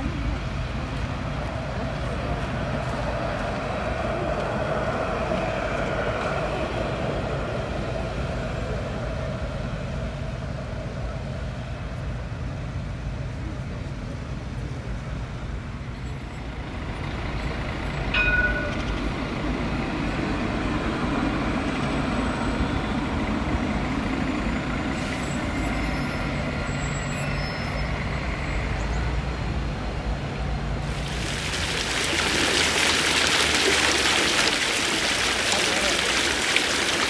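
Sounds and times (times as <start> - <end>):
tram and traffic rumble: 0.0 - 37.0
fountain jets splashing: 30.8 - 37.0.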